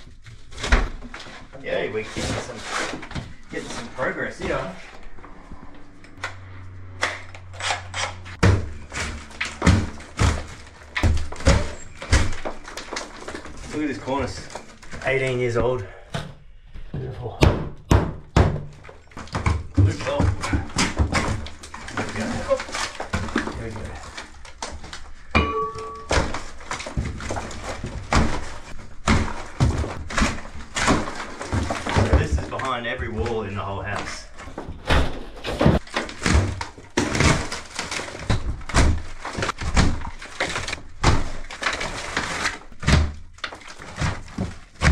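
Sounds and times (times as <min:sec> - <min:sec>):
plasterboard knocks and tearing: 0:00.0 - 0:04.8, 0:07.6 - 0:15.4, 0:17.4 - 0:25.3, 0:25.9 - 0:44.9
board pieces falling: 0:18.7 - 0:33.4, 0:34.0 - 0:44.9.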